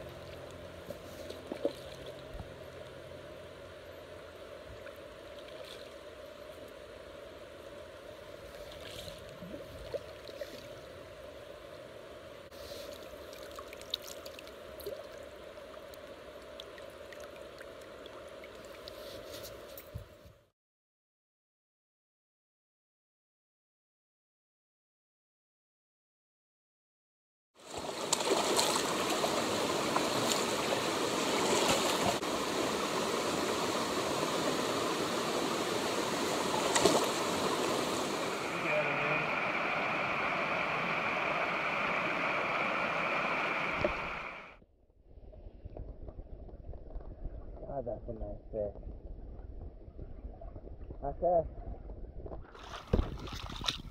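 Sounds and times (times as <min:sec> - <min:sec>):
river water flowing: 0:00.0 - 0:19.7, 0:27.6 - 0:44.6
small ticks and splashes: 0:00.1 - 0:02.9, 0:12.7 - 0:19.9, 0:27.6 - 0:32.2, 0:52.4 - 0:53.9
stream rushing over rocks: 0:27.6 - 0:44.5.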